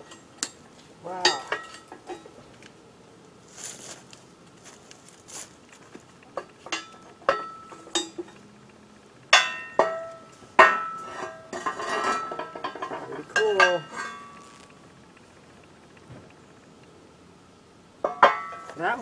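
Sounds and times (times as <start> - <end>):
metal ladles clanking: 1.2 - 2.4, 6.3 - 8.4, 9.3 - 14.6, 18.0 - 18.9.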